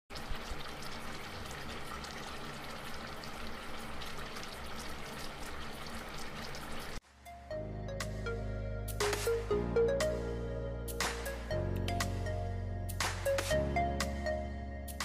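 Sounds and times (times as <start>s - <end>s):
broth boiling and bubbling: 0.1s - 7.0s.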